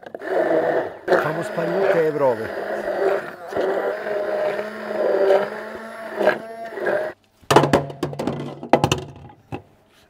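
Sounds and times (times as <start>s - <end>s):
stick blender motor whirr: 0.0s - 7.2s
sharp knocks and clatter: 7.5s - 9.7s.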